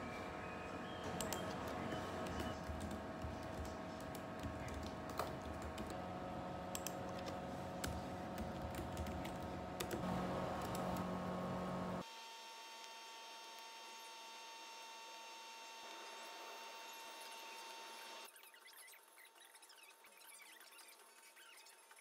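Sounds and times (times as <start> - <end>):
laptop keyboard typing: 1.2 - 6.0, 6.6 - 11.3.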